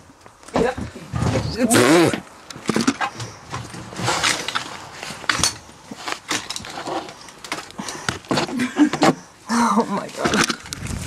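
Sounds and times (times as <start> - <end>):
scraping against rough wall: 0.6 - 9.3.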